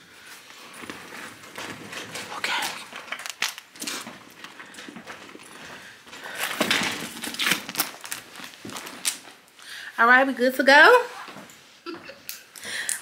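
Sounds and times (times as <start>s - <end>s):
rustling: 0.2s - 9.5s.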